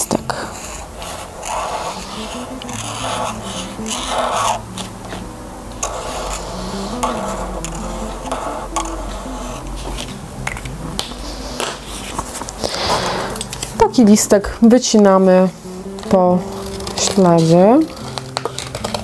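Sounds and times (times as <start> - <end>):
soft instrumental music: 0.0 - 19.0
marker scratching on paper: 0.4 - 5.2, 5.8 - 10.1.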